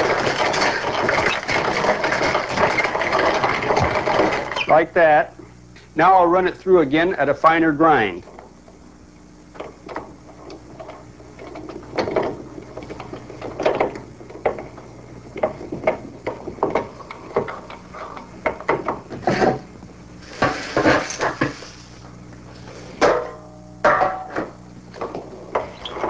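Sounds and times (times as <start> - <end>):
hand-cranked grain grinder crunching: 0.0 - 5.2, 20.2 - 22.9.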